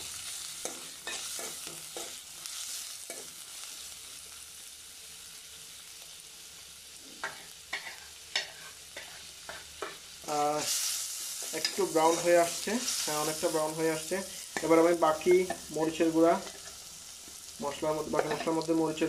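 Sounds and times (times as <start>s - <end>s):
onions sizzling in oil: 0.0s - 19.0s
spoon stirring and scraping pot: 0.6s - 2.2s, 7.2s - 10.0s, 16.4s - 17.4s, 18.1s - 18.6s.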